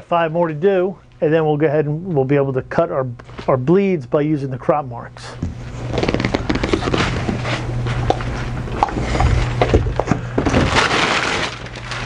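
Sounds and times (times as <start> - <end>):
foam sheets scraping and rustling: 5.6 - 8.5, 10.5 - 12.0
foam sheets knocking: 10.4 - 11.7.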